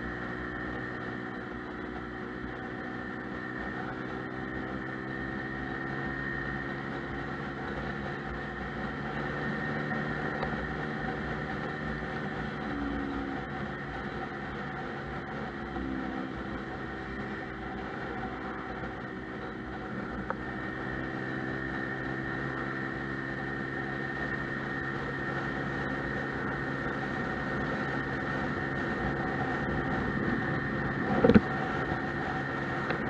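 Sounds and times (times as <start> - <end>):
road noise: 0.0 - 33.0
scooter engine running: 0.0 - 33.0
wind noise: 28.9 - 33.0.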